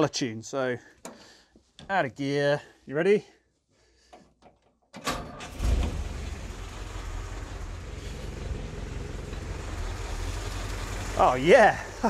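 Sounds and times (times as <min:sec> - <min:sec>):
jeep engine idling: 0:05.5 - 0:12.0.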